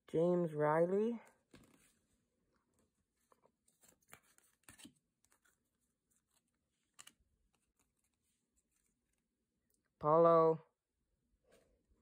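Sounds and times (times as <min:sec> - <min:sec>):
trading cards clicking and rustling: 0:03.7 - 0:09.0.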